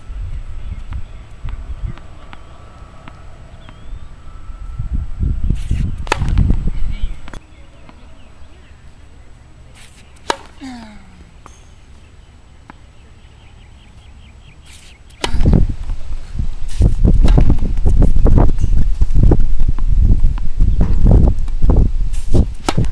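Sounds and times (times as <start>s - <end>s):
wind rumble on microphone: 0.0s - 7.4s, 15.2s - 22.9s
racket striking tennis ball: 5.6s - 6.6s, 9.7s - 10.6s, 16.7s - 17.9s, 22.2s - 22.9s.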